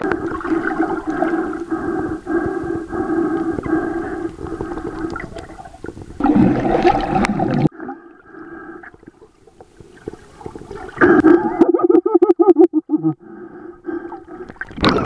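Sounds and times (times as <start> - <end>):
water swirling underwater: 0.0 - 11.8, 13.9 - 15.0
rush of water: 4.3 - 7.7.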